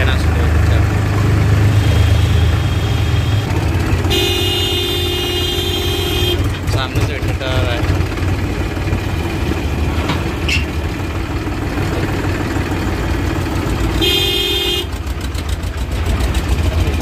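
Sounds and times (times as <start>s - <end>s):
tractor diesel engine drone: 0.0s - 17.0s
vehicle horn: 1.6s - 6.6s, 14.0s - 15.0s.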